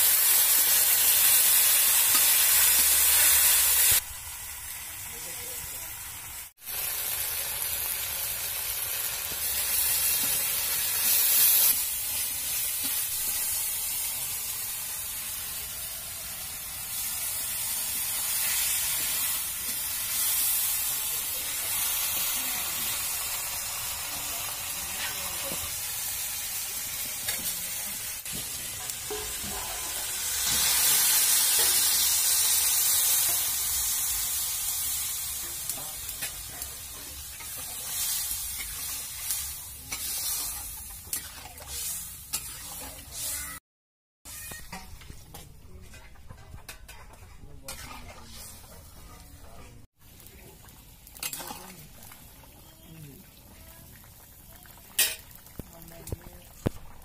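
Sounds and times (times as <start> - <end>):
fish and vegetables sizzling in oil: 0.0 - 43.6, 44.3 - 57.0
metal spatula scraping pan: 44.3 - 49.8.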